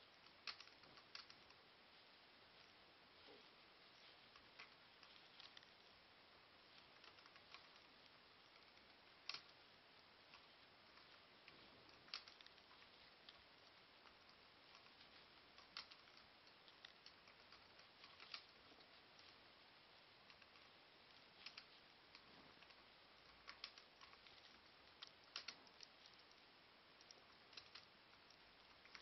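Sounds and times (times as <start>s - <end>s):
laptop keys clicking: 25.0s - 26.3s.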